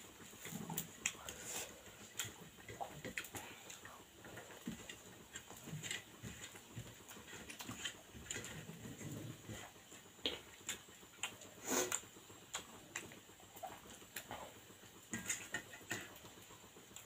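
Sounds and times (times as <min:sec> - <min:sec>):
chewing and lip smacks: 0:10.2 - 0:14.3.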